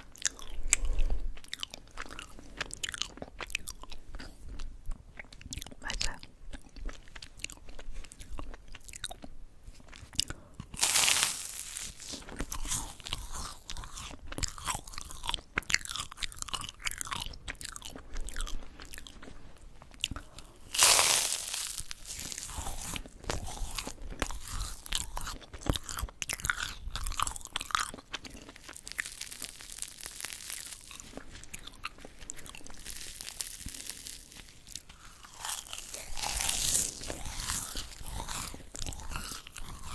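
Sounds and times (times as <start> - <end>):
crunching rice crackers: 0.0 - 39.9
loud crisp bites: 10.7 - 13.9, 20.6 - 25.9, 28.7 - 39.9.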